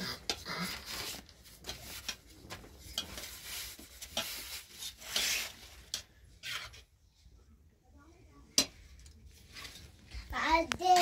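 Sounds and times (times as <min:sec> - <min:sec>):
rasping scraping strokes: 0:02.8 - 0:06.8.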